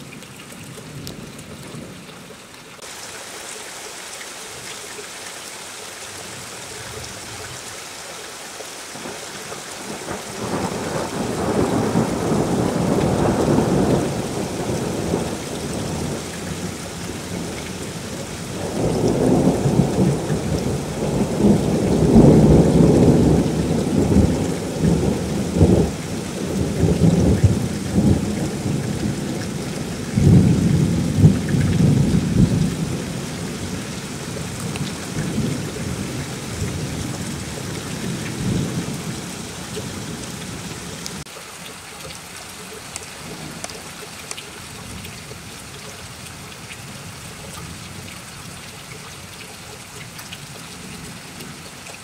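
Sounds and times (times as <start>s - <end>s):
steady rain hissing: 0.0s - 52.0s
thunder rolling: 9.9s - 17.6s, 18.5s - 33.7s.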